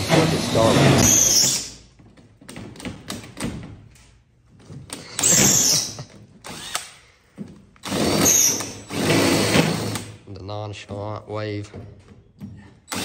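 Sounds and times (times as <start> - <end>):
cordless drill drilling into metal: 5.2 - 7.0, 7.8 - 10.2.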